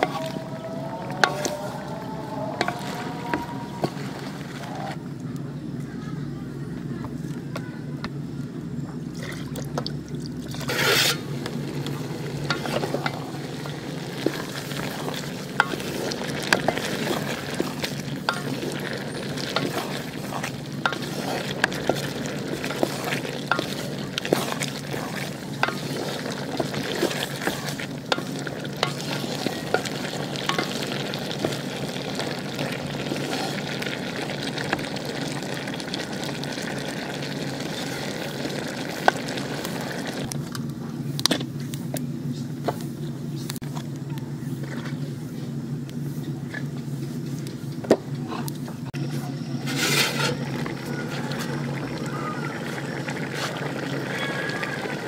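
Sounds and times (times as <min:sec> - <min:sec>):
food sizzling in a pot: 0:00.0 - 0:05.0, 0:10.6 - 0:40.3, 0:49.5 - 0:55.0
spatula scraping a pot: 0:10.6 - 0:11.3, 0:12.4 - 0:33.8, 0:49.6 - 0:50.5.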